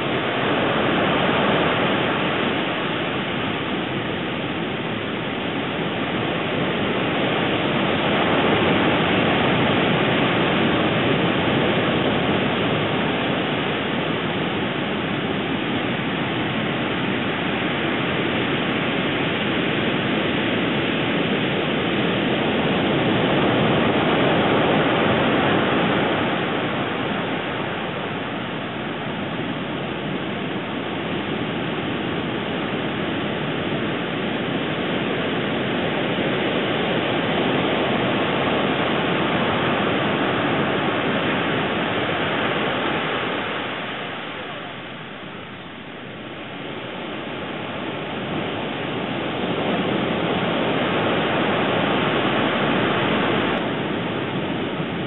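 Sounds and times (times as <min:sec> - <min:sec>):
steady rushing noise: 0:00.0 - 0:55.0
faint high tone: 0:44.1 - 0:45.2.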